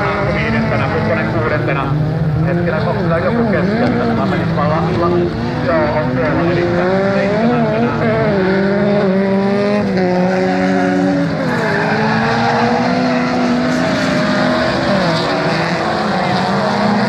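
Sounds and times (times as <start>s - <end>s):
race car engines revving: 0.0s - 17.0s.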